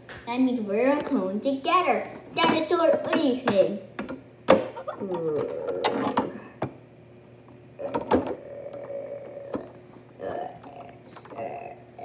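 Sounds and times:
child making dinosaur noise: 0:07.8 - 0:12.0.

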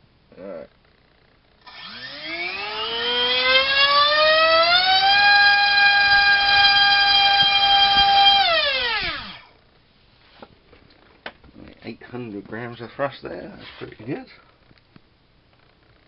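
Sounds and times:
electric motor and propeller whine: 0:01.6 - 0:09.5.

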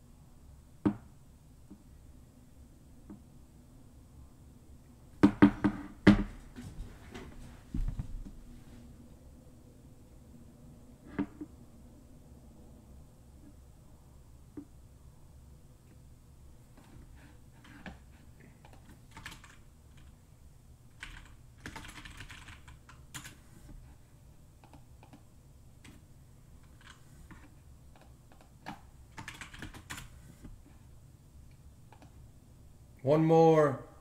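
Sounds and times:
typing on keyboard: 0:18.6 - 0:20.1, 0:20.9 - 0:23.4, 0:26.6 - 0:30.2.

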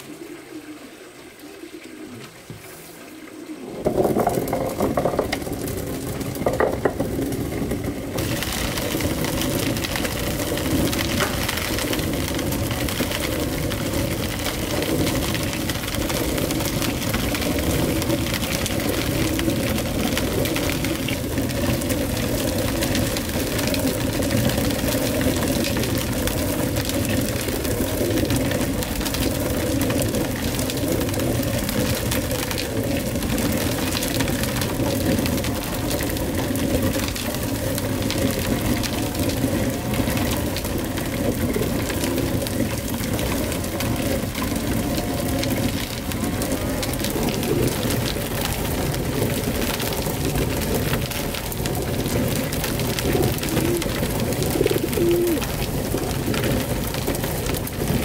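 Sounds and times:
stone quern grinding grain: 0:03.8 - 0:31.6.

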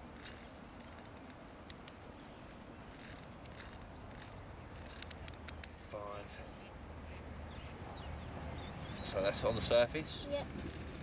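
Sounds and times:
fishing reel ratchet clicking: 0:00.1 - 0:01.9, 0:02.9 - 0:05.4, 0:10.7 - 0:11.0.

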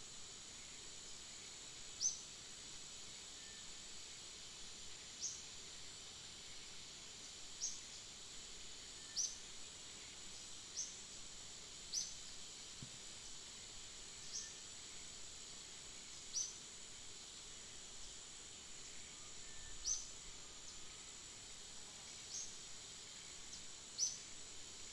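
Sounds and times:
high-pitched insect drone: 0:07.5 - 0:11.2, 0:13.2 - 0:24.9.

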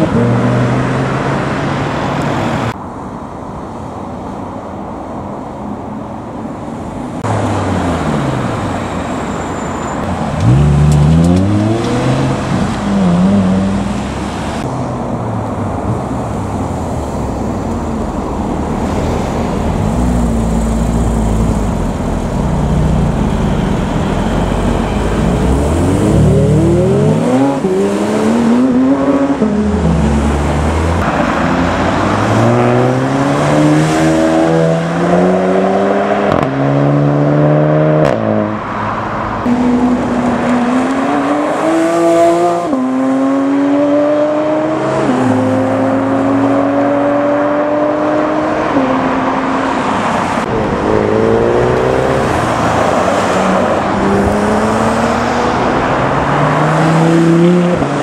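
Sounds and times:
cars accelerating past: 0:07.2 - 0:58.0
car revving up: 0:10.2 - 0:14.7, 0:18.5 - 0:58.0.

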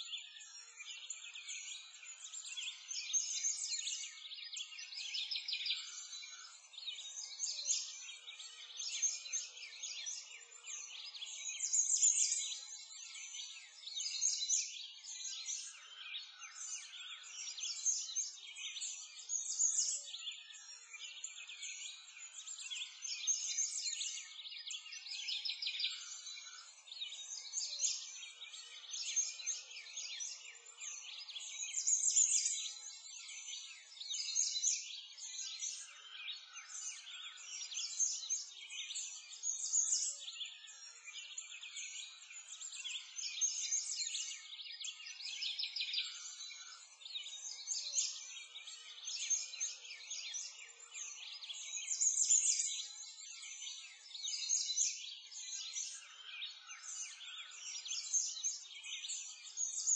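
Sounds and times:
many small birds chirping: 0:00.0 - 0:59.9.

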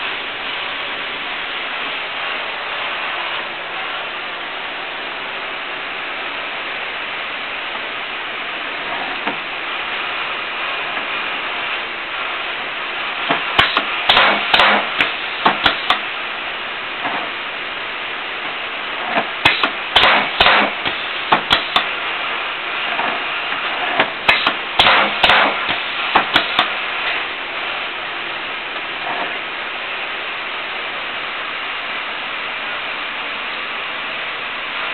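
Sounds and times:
steady machine hiss: 0:00.0 - 0:34.9
sharp rapid knocks: 0:13.3 - 0:16.0, 0:19.1 - 0:21.9, 0:24.0 - 0:26.7.

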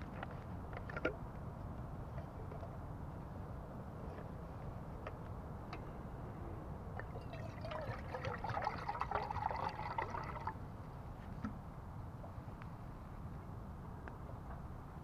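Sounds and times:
water pouring into metal cup: 0:07.0 - 0:10.6.

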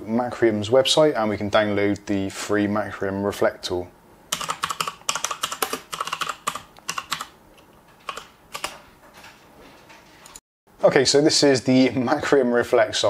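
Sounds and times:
typing on computer keyboard: 0:04.3 - 0:07.4, 0:08.0 - 0:08.8.

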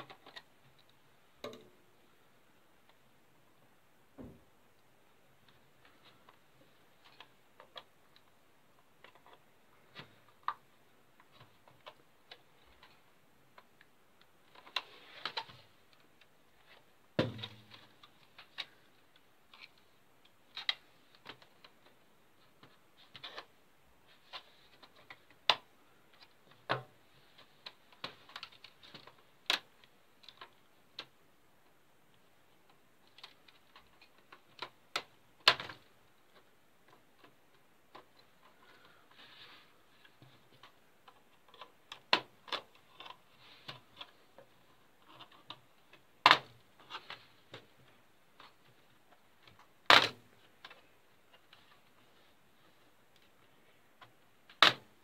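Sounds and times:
plastic laptop casing snapping: 0:49.8 - 0:50.2, 0:54.5 - 0:54.9.

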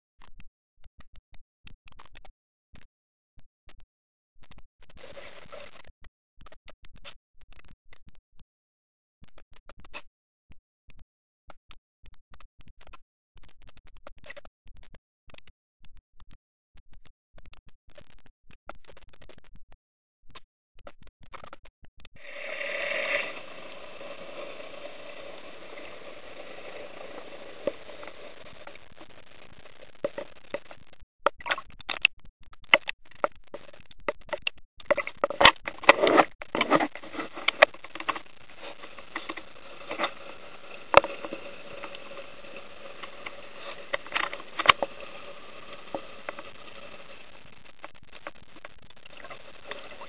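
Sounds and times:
sharp underwater clicks and crackles: 0:00.2 - 0:08.5, 0:09.2 - 0:50.0
muffled underwater hiss: 0:22.2 - 0:30.3, 0:36.6 - 0:48.3, 0:49.0 - 0:50.0.

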